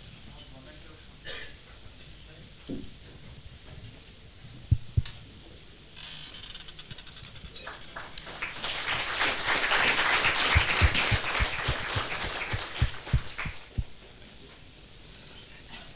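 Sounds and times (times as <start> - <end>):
heavy thumps: 4.7 - 5.1, 10.5 - 14.0
audience applauding: 7.6 - 13.9.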